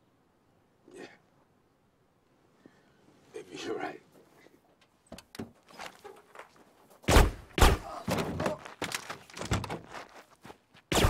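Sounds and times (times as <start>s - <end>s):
footsteps on ground: 5.6s - 7.5s, 8.1s - 11.0s
heavy thunks: 7.1s - 10.1s.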